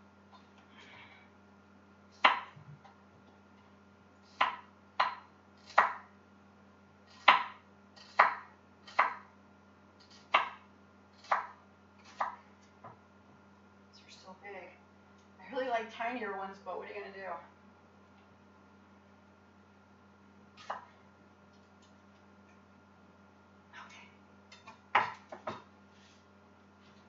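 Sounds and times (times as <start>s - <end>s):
knife chopping onion: 2.2s - 2.6s, 4.3s - 6.1s, 7.1s - 9.3s, 10.0s - 10.6s, 11.2s - 12.4s, 20.6s - 20.9s, 24.5s - 25.7s.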